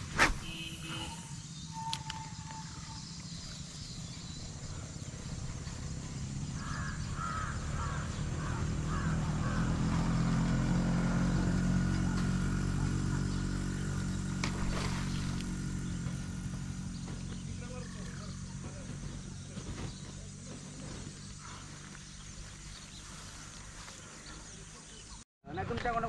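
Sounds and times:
bird calling: 0.4s - 5.0s, 6.0s - 9.8s, 14.4s - 25.2s
vehicle engine passing: 2.7s - 25.0s.

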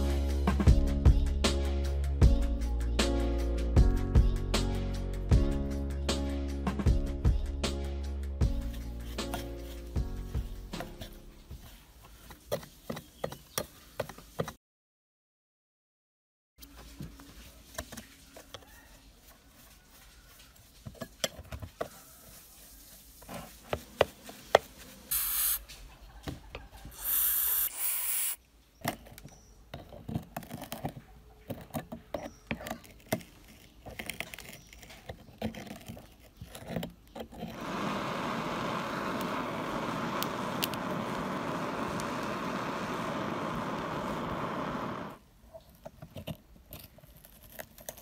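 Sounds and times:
blowtorch flame hissing: 25.1s - 25.6s, 26.9s - 28.4s, 37.5s - 45.2s
short hissing bursts: 25.1s - 25.6s, 26.9s - 28.4s, 37.6s - 45.2s.

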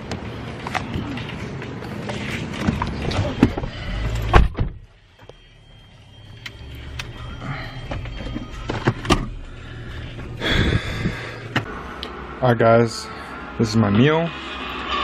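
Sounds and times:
outside noise: 0.0s - 15.0s
car door shutting: 3.2s - 4.8s.

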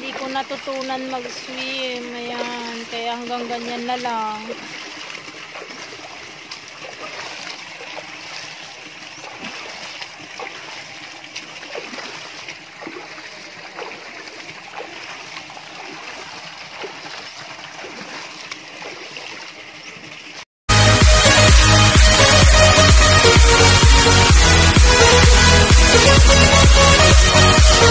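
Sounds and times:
feet splashing in water: 0.0s - 20.4s
water dripping: 0.0s - 20.4s.

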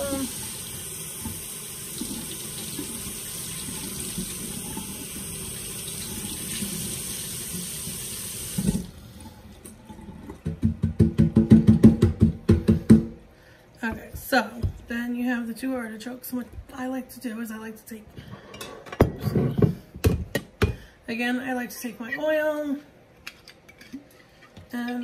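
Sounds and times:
kitchen tap running: 0.0s - 11.2s.

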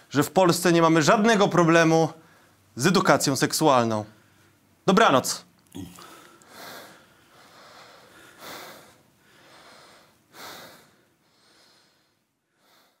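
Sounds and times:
person breathing heavily: 5.8s - 13.0s.

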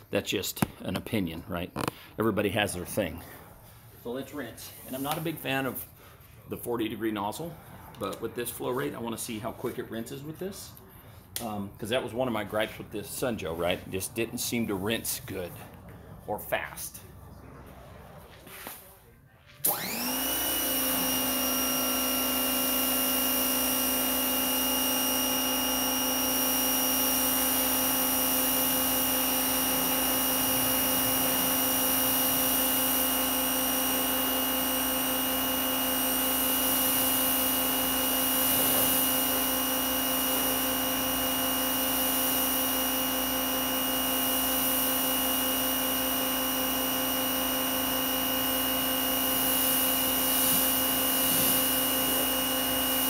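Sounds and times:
pressure washer whine: 19.6s - 53.0s.

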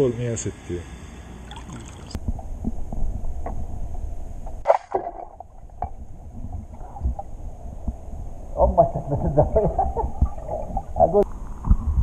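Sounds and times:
speargun firing underwater: 4.6s - 6.0s.

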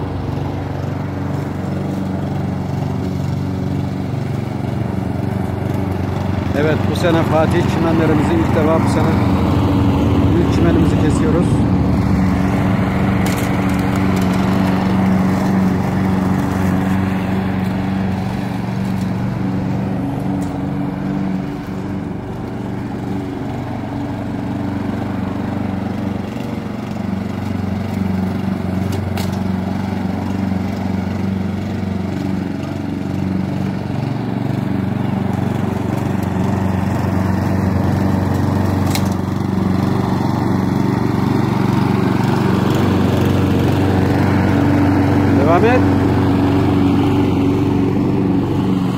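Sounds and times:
lawn mower running: 0.0s - 48.9s.

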